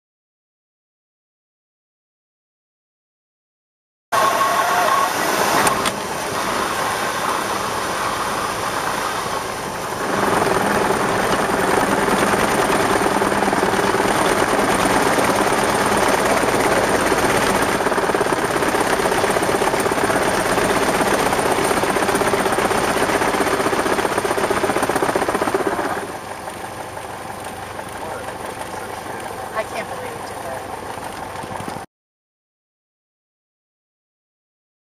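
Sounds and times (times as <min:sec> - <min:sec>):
airframe shaking vibration: 0:04.2 - 0:31.8
airplane engine and propeller: 0:04.2 - 0:31.9.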